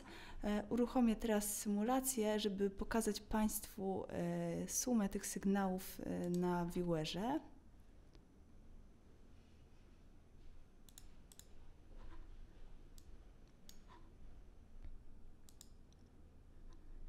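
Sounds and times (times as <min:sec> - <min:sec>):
faint low hum: 0:00.0 - 0:17.0
computer mouse clicks: 0:06.2 - 0:06.5, 0:10.8 - 0:12.3, 0:12.9 - 0:14.1, 0:14.8 - 0:17.0.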